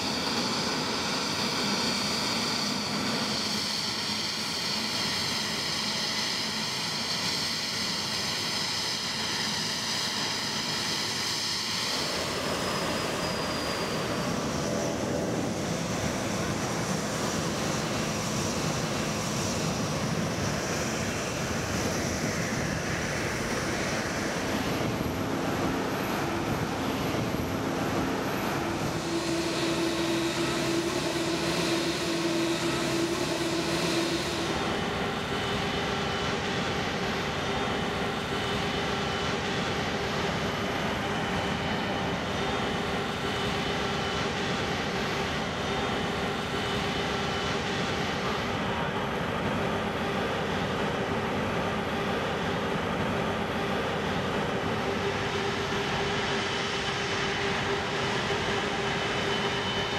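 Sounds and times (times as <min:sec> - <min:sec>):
jet engines whining: 0:00.0 - 0:59.9
steady rushing noise: 0:12.0 - 0:59.9.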